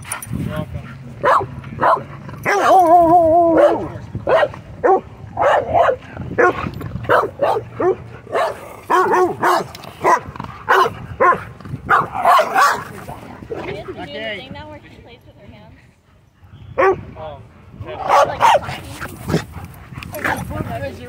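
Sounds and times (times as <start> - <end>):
dogs barking: 0.9 - 13.6, 16.8 - 17.0, 18.0 - 20.5.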